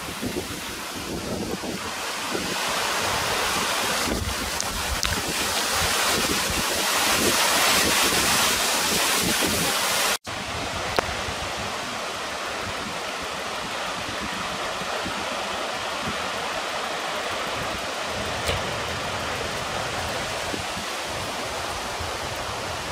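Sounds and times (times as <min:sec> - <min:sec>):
floodwater rushing: 0:00.0 - 0:22.9
wind and rain hiss: 0:00.0 - 0:22.9
wind buffeting microphone: 0:00.0 - 0:22.9
click: 0:04.6 - 0:05.2, 0:18.4 - 0:19.2.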